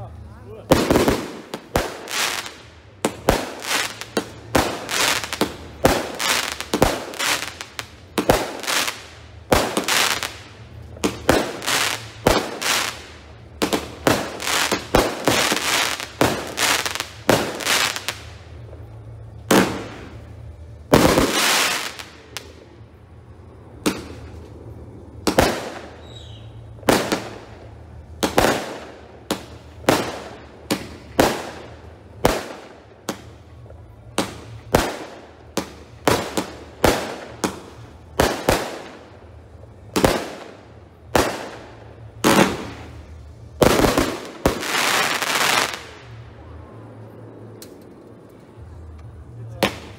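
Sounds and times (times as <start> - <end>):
firework bangs with echo: 0.6 - 18.3, 19.3 - 22.7, 23.8 - 24.4, 25.2 - 33.3, 39.9 - 46.2.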